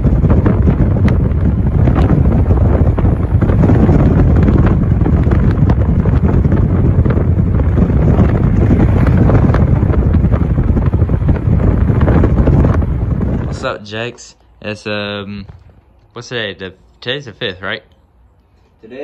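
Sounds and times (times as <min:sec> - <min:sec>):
wind buffeting microphone: 0:00.0 - 0:16.7
road noise: 0:00.0 - 0:19.0.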